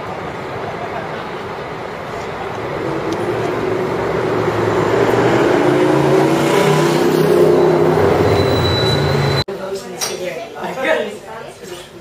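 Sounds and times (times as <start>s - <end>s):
vehicle engine approaching: 0.0s - 9.4s
city street traffic: 0.0s - 9.6s.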